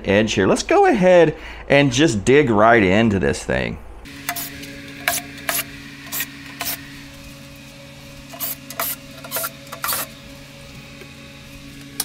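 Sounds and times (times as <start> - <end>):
steady low hum: 3.7 - 12.0.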